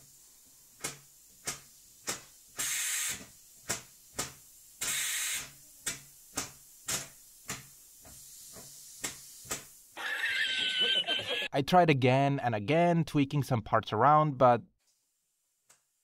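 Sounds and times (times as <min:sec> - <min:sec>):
air engine puffing hisses: 0:02.5 - 0:03.4, 0:04.8 - 0:05.6, 0:07.0 - 0:09.8.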